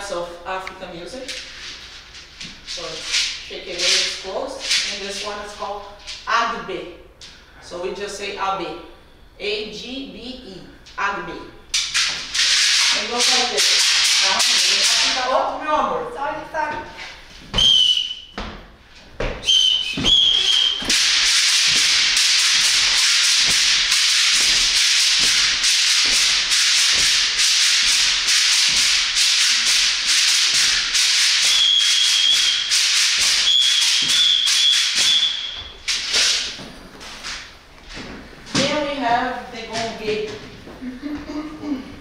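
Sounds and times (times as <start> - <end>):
bead gourd shaker rattling: 12.2 - 15.2, 20.2 - 35.3.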